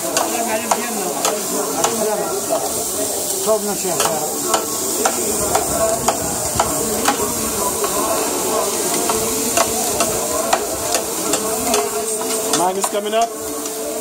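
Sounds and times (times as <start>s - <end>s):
meat sizzling on hot plate: 0.0s - 14.0s
metal spatulas clacking on griddle: 0.1s - 2.0s, 4.0s - 6.7s.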